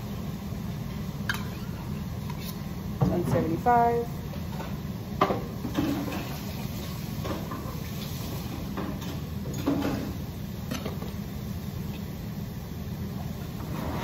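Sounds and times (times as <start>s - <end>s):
low machinery hum: 0.0s - 14.0s
kitchen knocks and clatters: 4.6s - 6.4s, 8.6s - 11.1s.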